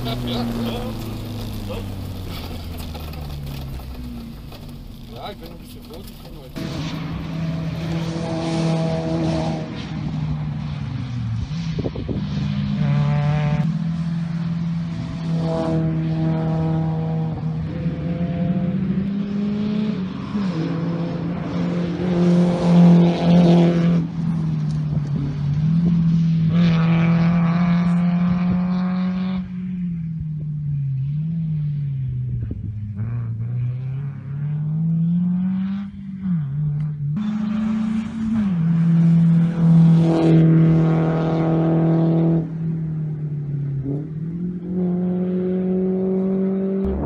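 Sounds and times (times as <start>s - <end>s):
gear changes: 0.0s - 10.4s
rally car engines revving: 0.0s - 47.0s.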